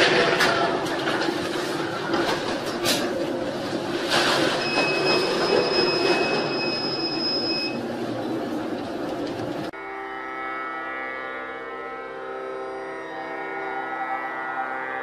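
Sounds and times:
sea waves: 0:00.0 - 0:07.9.

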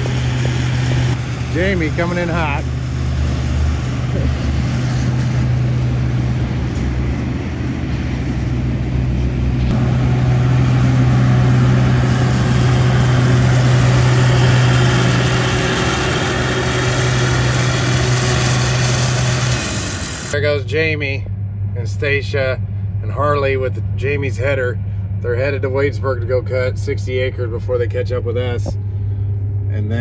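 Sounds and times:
vehicle rushing noise: 0:00.0 - 0:20.4
heavy farm vehicle engine drone: 0:00.0 - 0:30.0.

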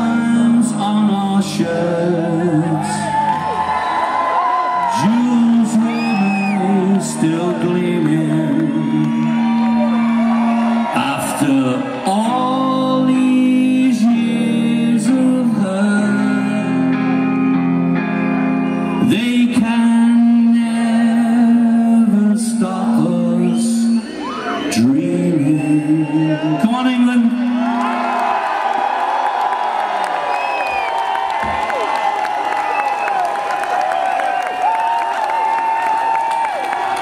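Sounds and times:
person singing: 0:00.0 - 0:03.4, 0:04.8 - 0:18.0, 0:18.9 - 0:24.1
live rock band playing: 0:16.7 - 0:19.2.

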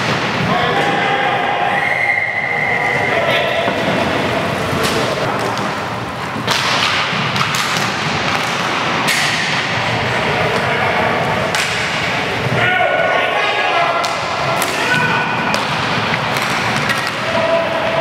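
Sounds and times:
sticks and puck cracking: 0:04.7 - 0:09.8, 0:11.5 - 0:12.2, 0:14.0 - 0:17.6.

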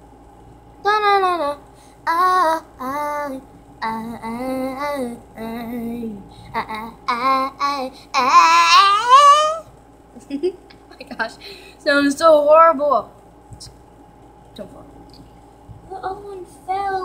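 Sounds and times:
girl singing unaccompanied: 0:00.8 - 0:09.7, 0:15.8 - 0:17.0.

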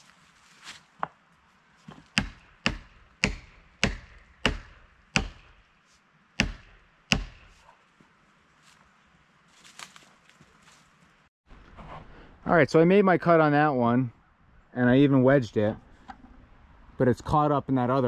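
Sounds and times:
axe striking wedge: 0:02.0 - 0:05.7, 0:06.4 - 0:07.6.

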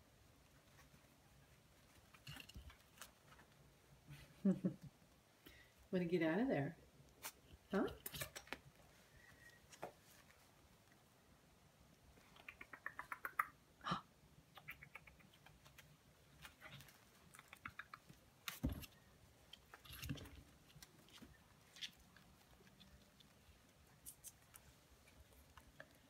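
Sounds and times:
puppy claws clicking and scrabbling: 0:07.9 - 0:08.7, 0:12.2 - 0:13.6, 0:14.6 - 0:26.0.

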